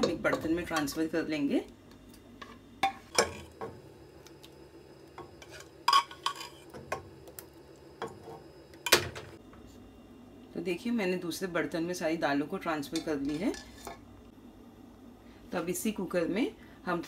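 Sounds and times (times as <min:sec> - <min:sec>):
metal ladle scraping cookware: 0:05.3 - 0:06.8, 0:13.0 - 0:14.0.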